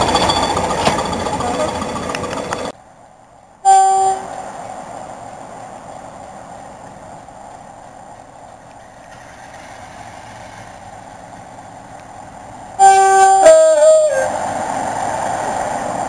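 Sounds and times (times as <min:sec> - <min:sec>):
diesel train engines running: 0:00.0 - 0:16.0
train horn: 0:03.7 - 0:04.4, 0:12.8 - 0:14.4.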